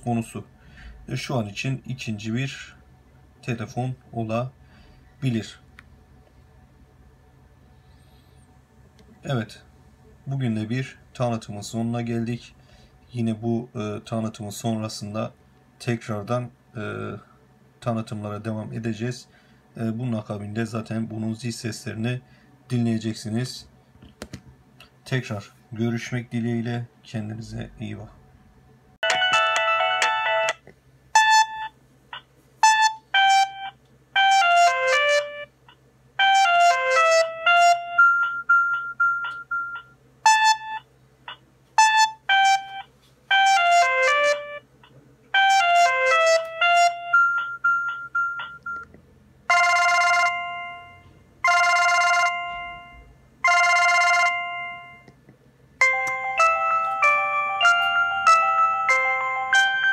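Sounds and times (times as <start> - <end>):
phone ringtone melodies: 29.0 - 30.6, 31.2 - 31.7, 32.6 - 35.5, 36.2 - 40.9, 41.8 - 44.6, 45.3 - 48.9, 49.5 - 55.1, 55.8 - 59.9.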